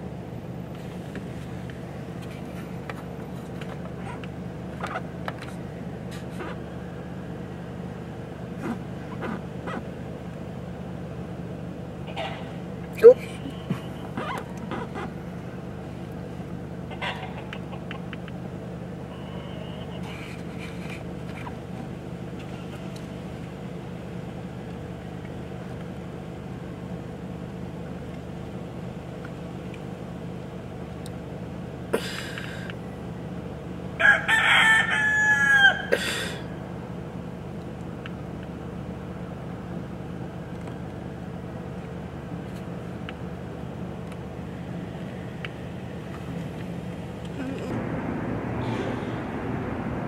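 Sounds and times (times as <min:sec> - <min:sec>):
rooster crowing: 0:34.0 - 0:35.9
steady low hum: 0:35.8 - 0:50.0.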